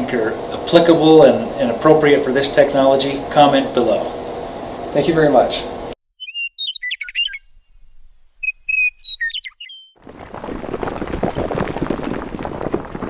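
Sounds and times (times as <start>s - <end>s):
birds chirping: 6.2s - 10.0s
crumbling concrete and falling rubble: 10.0s - 13.0s.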